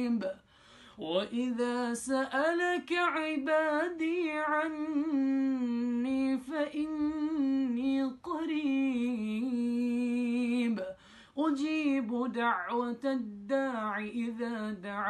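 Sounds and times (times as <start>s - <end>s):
man chanting melodically: 12.2s - 15.0s.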